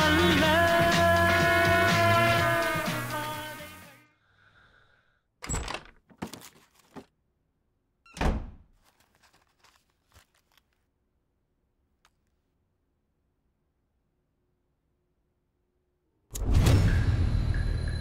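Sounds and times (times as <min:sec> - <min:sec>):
music: 0:00.0 - 0:04.2.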